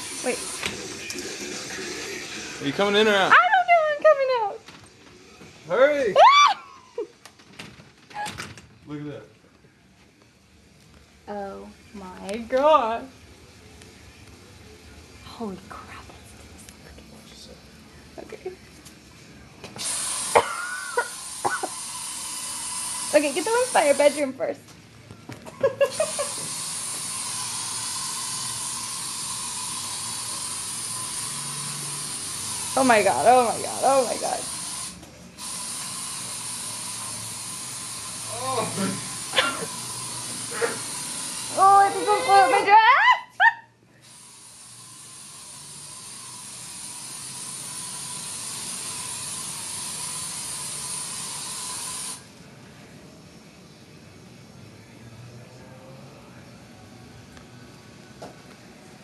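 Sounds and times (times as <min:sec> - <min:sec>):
aerosol spray hissing: 0:19.8 - 0:24.4, 0:25.8 - 0:42.5, 0:44.0 - 0:52.3.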